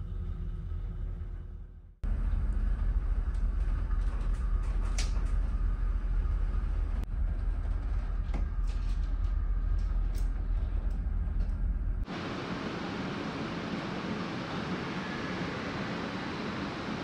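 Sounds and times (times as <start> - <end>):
ship engine rumble: 0.0 - 17.0
faint clicks and creaks: 7.0 - 12.0.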